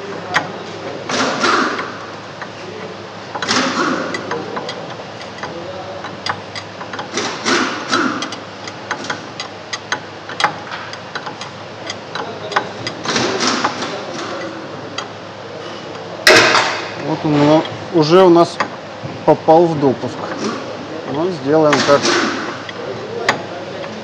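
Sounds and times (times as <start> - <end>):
wrench clicking and knocking on metal: 0.3 - 0.5, 3.3 - 15.1, 21.1 - 23.5.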